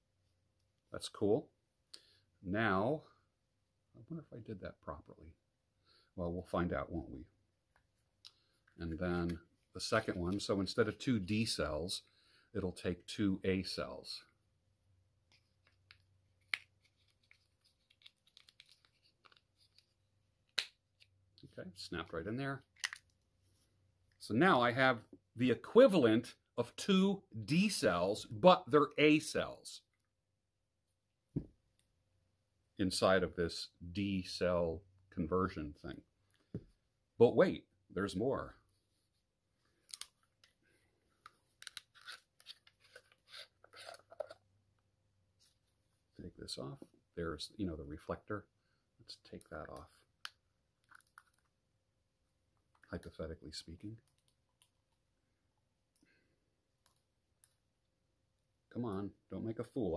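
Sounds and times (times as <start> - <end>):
plastic flashlight being handled: 15.3 - 21.2, 22.7 - 23.2, 39.8 - 40.6, 41.2 - 44.5, 49.4 - 51.6.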